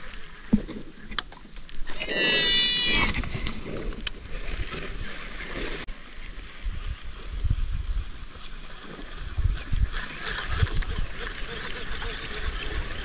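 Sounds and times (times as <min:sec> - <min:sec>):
wind rumbling on microphone: 0:05.8 - 0:13.0.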